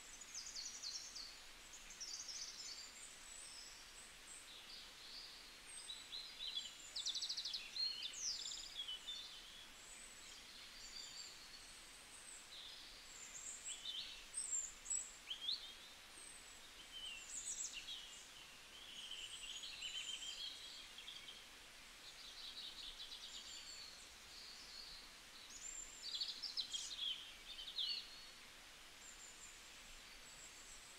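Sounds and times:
faint steady hiss: 0.0 - 30.9
songbirds singing: 0.0 - 30.9.

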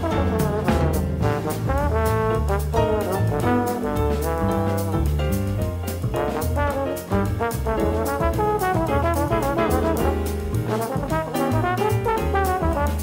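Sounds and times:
bass line: 0.0 - 13.0
drum strikes: 0.0 - 13.0
jazz trombone solo: 0.0 - 13.0.

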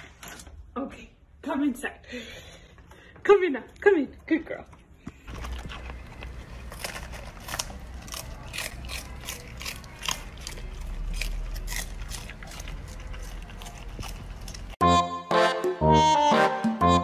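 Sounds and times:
puppy crunching cabbage leaves: 4.5 - 14.8.

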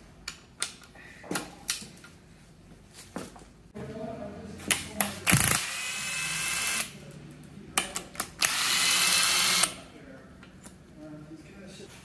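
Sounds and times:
cordless power tool whirring: 8.4 - 9.7.

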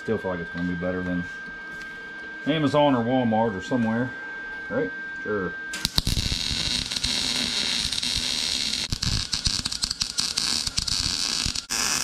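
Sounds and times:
welder arc crackling and sizzling: 5.7 - 12.0.

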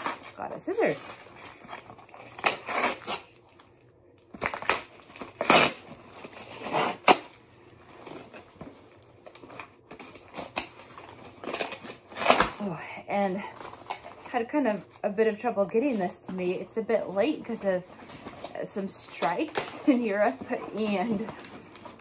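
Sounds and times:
cardboard tearing and crinkling: 0.0 - 12.8, 17.2 - 22.0.

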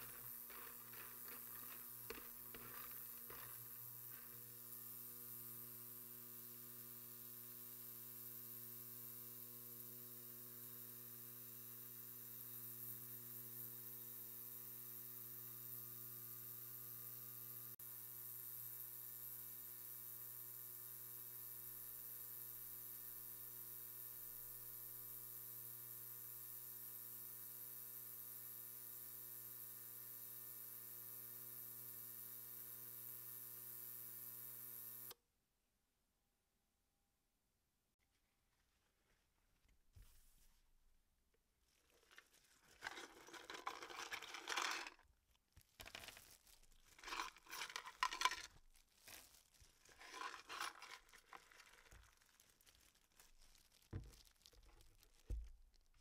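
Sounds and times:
ultrasonic cleaner humming: 0.0 - 11.0, 42.7 - 45.0, 46.9 - 48.5, 49.2 - 52.0.

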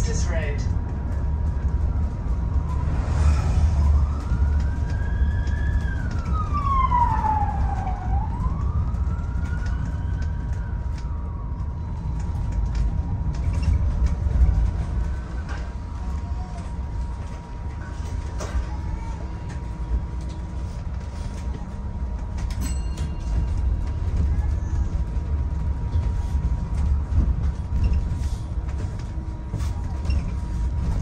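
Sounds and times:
bus engine and road rumble: 0.0 - 31.0
wailing siren: 1.2 - 16.3.

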